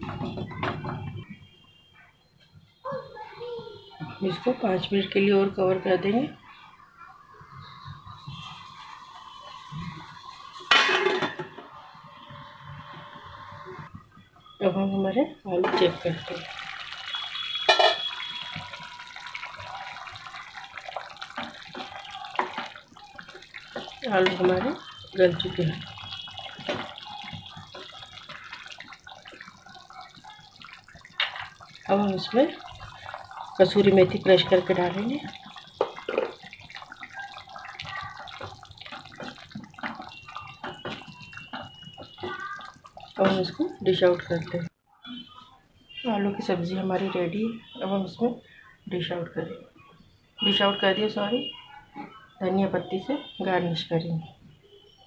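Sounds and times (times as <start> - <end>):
curry simmering and bubbling: 3.9 - 48.6
gravy sloshing: 15.6 - 44.7
wooden spatula stirring and scraping: 17.1 - 44.4.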